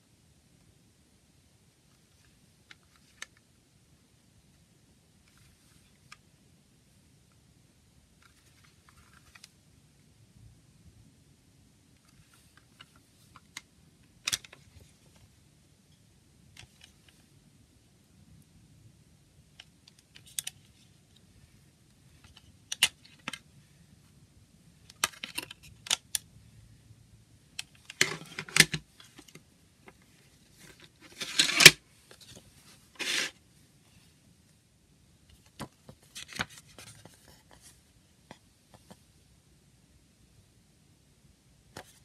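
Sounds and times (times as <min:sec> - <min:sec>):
paper booklet scraping and rustling: 0:30.4 - 0:33.4.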